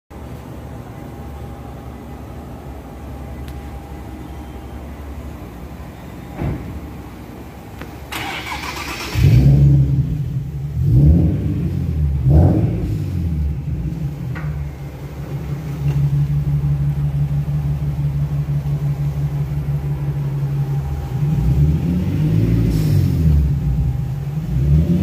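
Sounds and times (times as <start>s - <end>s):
car engine starting and revving: 8.1s - 25.0s.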